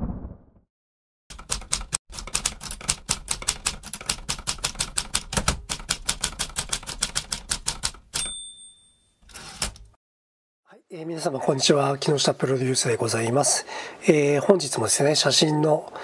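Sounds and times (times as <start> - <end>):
typewriter bell ding: 8.2 - 9.3.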